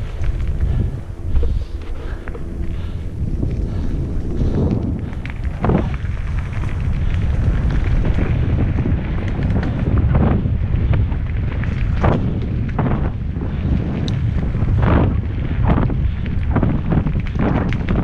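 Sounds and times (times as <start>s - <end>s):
wind buffeting microphone: 0.0s - 18.0s
bike knocks and rattles: 4.3s - 18.0s.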